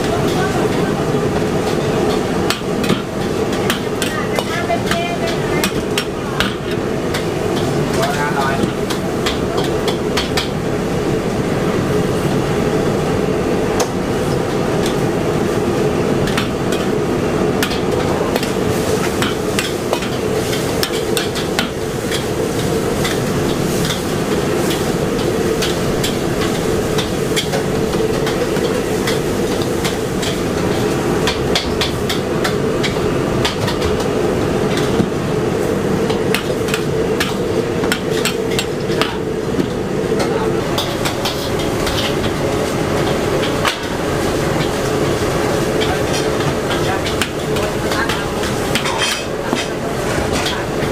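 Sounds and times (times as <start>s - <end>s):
gas burner roar: 0.0s - 50.9s.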